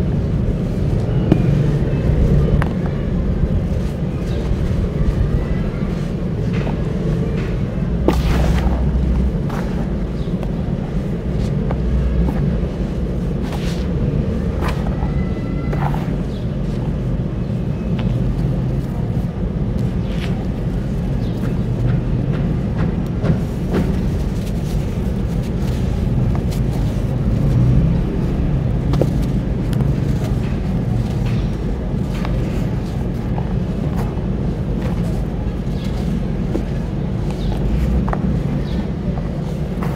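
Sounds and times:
steady low rumble: 0.0 - 39.9
hands crushing dry sand: 0.1 - 39.9.

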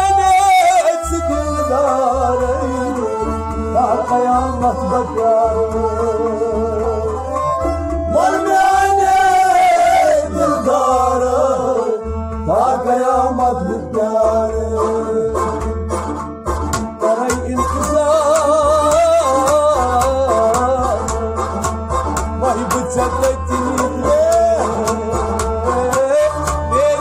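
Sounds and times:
percussion strokes: 14.7 - 27.0.

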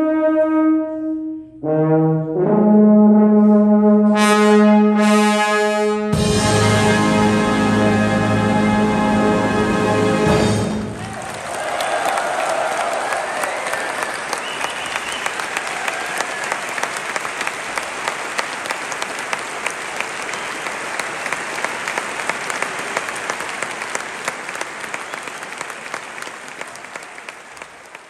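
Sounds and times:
audience applauding: 10.6 - 28.0.

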